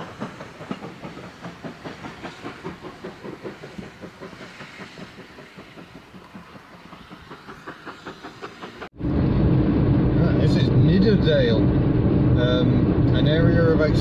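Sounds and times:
steam hissing: 0.0s - 9.0s
steam locomotive beats: 0.0s - 14.0s.

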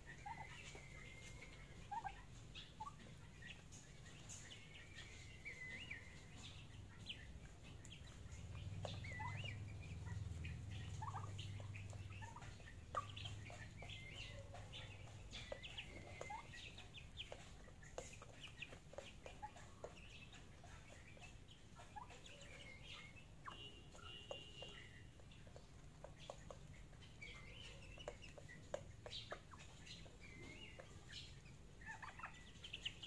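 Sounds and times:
young turkeys peeping: 0.0s - 33.0s.

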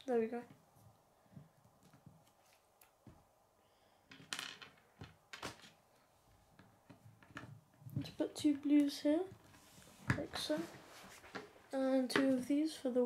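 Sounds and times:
plastic pieces clicking on table: 4.1s - 5.8s.

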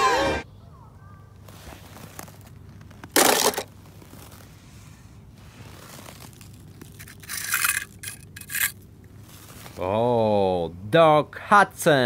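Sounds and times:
crunches of snow: 0.8s - 8.5s, 9.1s - 10.0s
toy cars clattering together: 3.1s - 3.7s, 6.8s - 8.8s.

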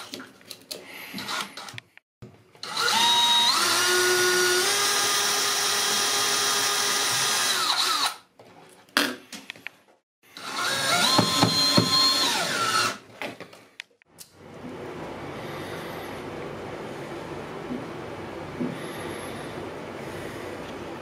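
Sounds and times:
cordless drill motor whine: 2.6s - 8.2s, 10.4s - 13.0s.

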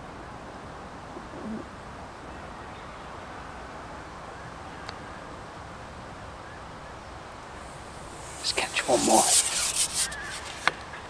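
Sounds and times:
outdoor background rush: 0.0s - 11.0s.

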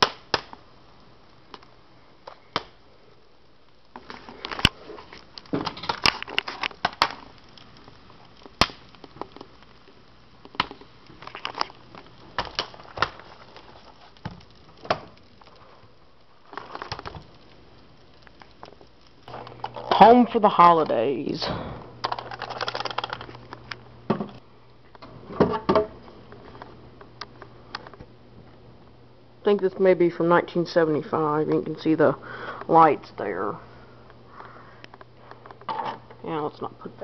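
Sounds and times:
popcorn popping: 0.0s - 2.8s, 3.7s - 21.3s, 21.9s - 28.1s.

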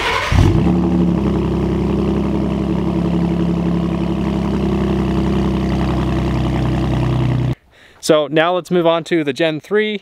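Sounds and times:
truck engine starting and idling: 0.0s - 7.6s.

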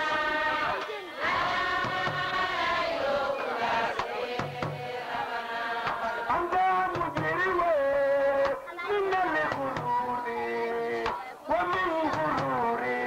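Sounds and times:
sharp percussive strokes: 1.8s - 2.5s, 4.0s - 5.0s.

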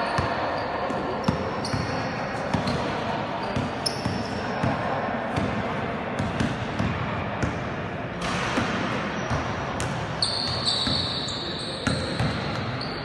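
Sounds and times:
sneakers squeaking on floor: 0.0s - 4.7s, 9.0s - 13.0s.

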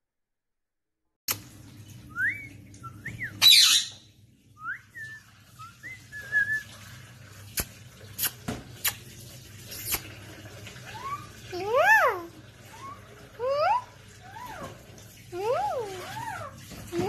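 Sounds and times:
parakeet whistled chirps: 2.2s - 4.0s, 10.8s - 11.3s
parakeet harsh squawk: 3.4s - 4.0s.

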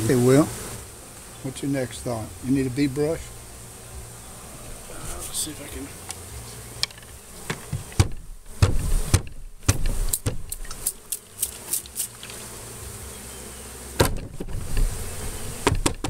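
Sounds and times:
honeybees buzzing: 0.0s - 16.0s
wooden hive boxes knocking: 4.9s - 13.0s, 13.9s - 16.0s
loud knock: 8.0s - 10.5s, 14.0s - 14.5s, 15.6s - 16.0s
spray bottle squirts: 9.9s - 12.4s.

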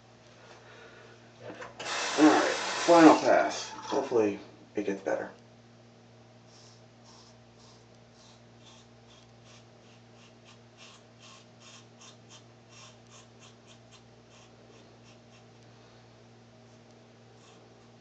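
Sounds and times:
steady low hum: 0.0s - 18.0s
razor scraping stubble: 6.5s - 15.6s, 16.7s - 18.0s.

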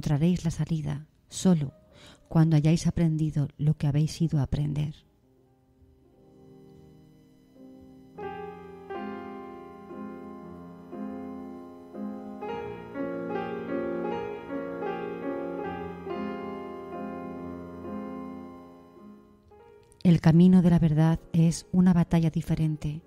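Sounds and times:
slow gentle piano music: 4.6s - 23.0s.

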